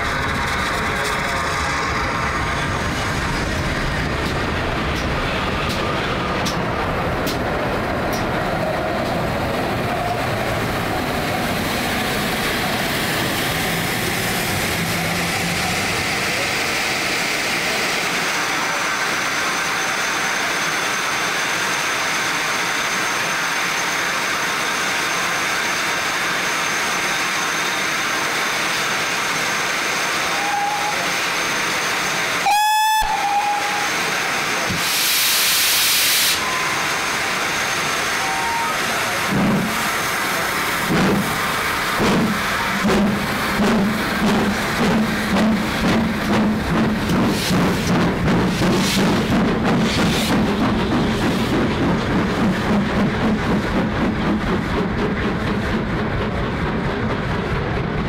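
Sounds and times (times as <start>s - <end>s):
steam locomotives rumbling by: 0.0s - 58.0s
steam whistle blast: 30.3s - 31.1s, 32.4s - 34.0s, 34.8s - 37.2s, 38.2s - 39.0s
steam hissing: 33.1s - 54.8s.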